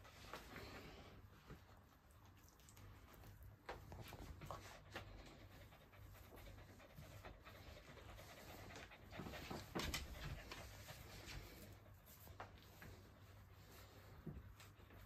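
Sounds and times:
dog panting: 3.0 - 15.0.

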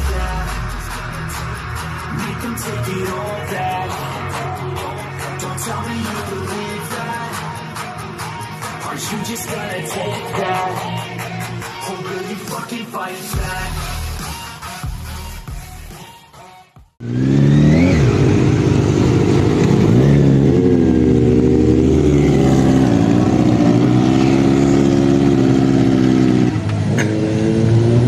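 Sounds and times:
motorcycle engine revving: 17.0 - 28.0.

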